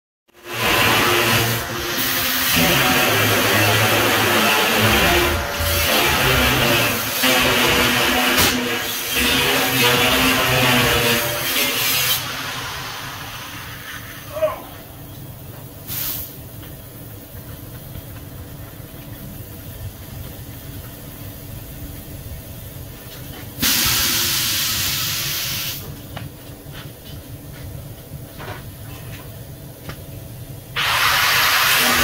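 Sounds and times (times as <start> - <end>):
welder arc sizzling: 0.4 - 14.2, 30.8 - 32.0.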